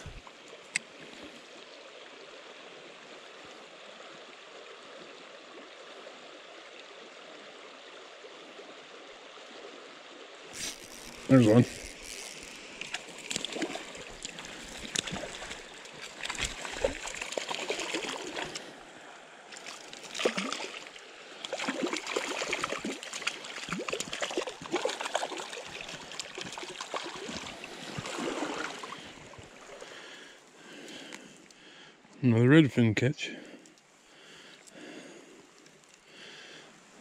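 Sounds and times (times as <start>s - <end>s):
stream running: 0.0s - 37.0s
fish splashing in water: 10.6s - 18.7s, 19.5s - 30.0s.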